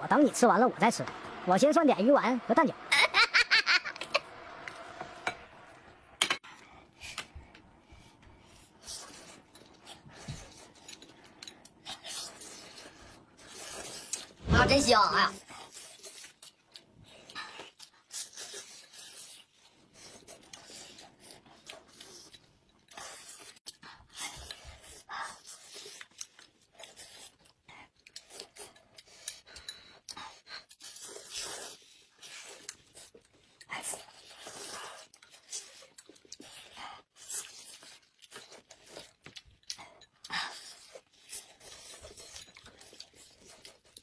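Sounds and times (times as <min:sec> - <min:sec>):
chewing noises: 0:15.4 - 0:44.0.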